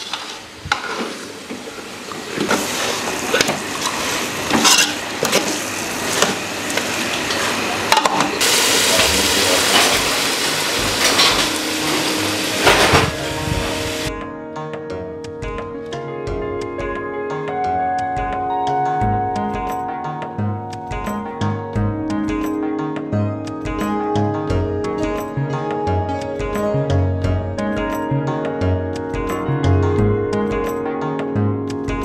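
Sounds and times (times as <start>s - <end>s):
food sizzling: 0.0s - 14.1s
music: 8.0s - 32.0s.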